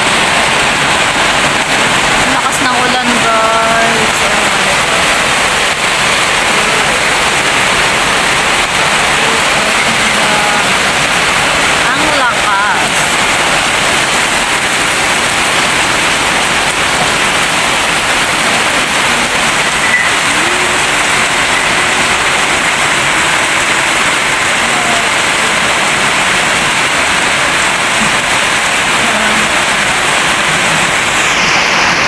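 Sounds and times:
rain on foliage: 0.0s - 32.0s.

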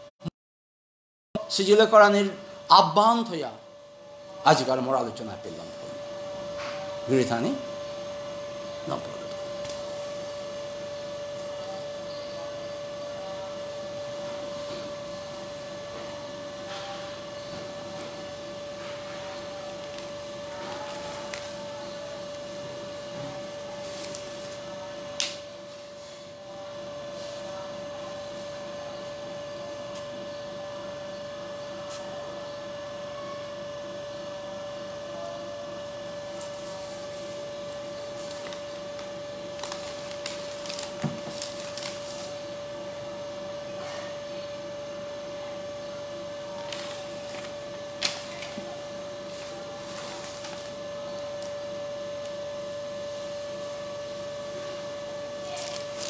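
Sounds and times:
steady background hum: 1.4s - 56.0s.

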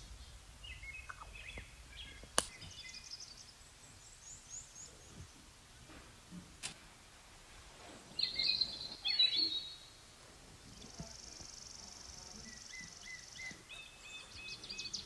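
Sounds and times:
small birds chirping: 0.0s - 5.8s, 8.1s - 15.0s.

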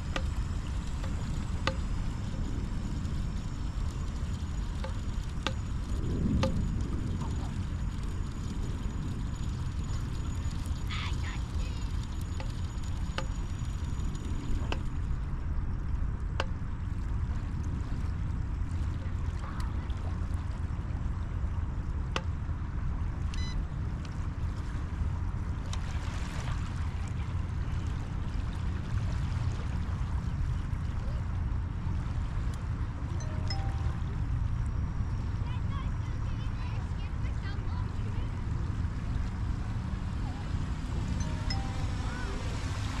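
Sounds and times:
wind rumble on microphone: 0.0s - 43.0s
small waves lapping on sand: 24.4s - 30.3s, 35.5s - 43.0s.

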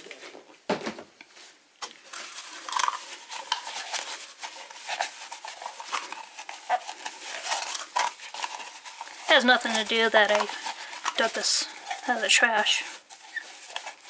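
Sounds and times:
paper towel rubbing canvas: 2.1s - 14.0s.

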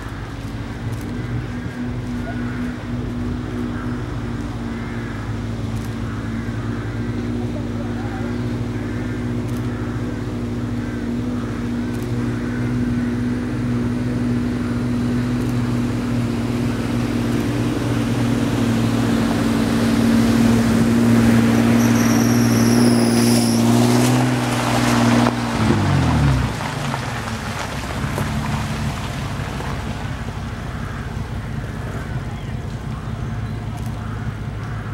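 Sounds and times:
vehicle engine hum: 0.0s - 34.9s
water rushing and splashing: 13.2s - 34.7s
thin high squeal: 21.7s - 23.8s.

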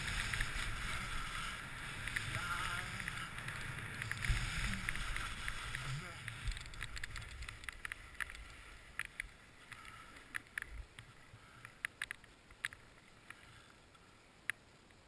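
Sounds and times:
wind rumbling on microphone: 0.0s - 11.6s
skis scraping over snow: 0.0s - 11.7s.

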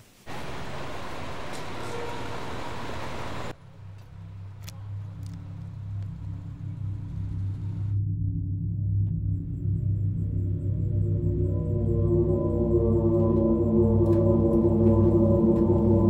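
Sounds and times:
traffic on wet street: 0.2s - 7.9s
droning music hum: 0.3s - 16.0s.

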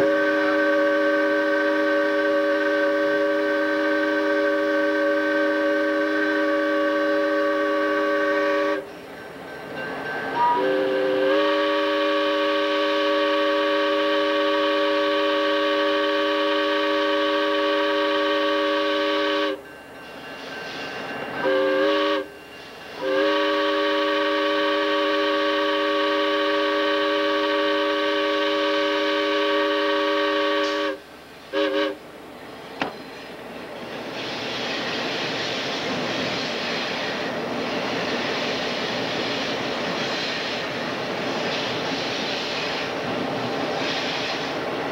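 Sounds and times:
locomotive air horn blasts: 0.0s - 8.9s, 10.4s - 19.6s, 21.4s - 22.4s, 23.0s - 32.0s
rail noise: 0.0s - 44.9s.

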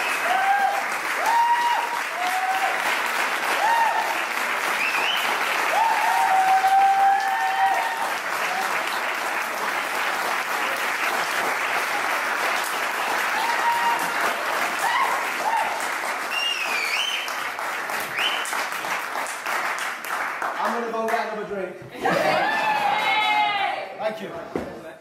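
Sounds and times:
cheers and whoops: 0.0s - 8.9s, 13.2s - 17.3s, 22.1s - 24.0s
audience applauding: 0.0s - 23.8s
high whistle: 4.8s - 5.4s, 16.3s - 17.4s, 18.1s - 18.5s.

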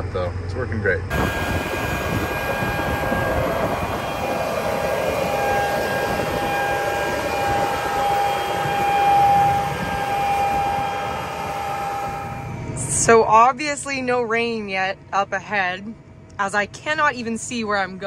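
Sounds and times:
high whine: 1.1s - 14.3s
tractor engine drone: 1.1s - 15.6s.

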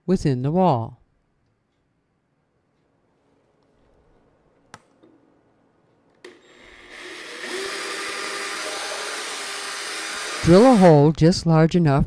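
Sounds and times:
cordless drill boring drywall: 6.2s - 11.1s.

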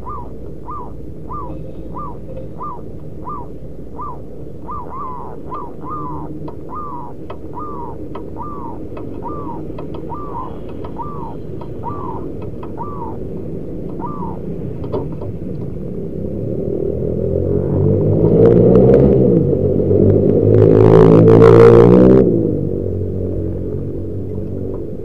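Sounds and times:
dove cooing: 0.0s - 15.1s
low background hum: 0.0s - 21.2s.

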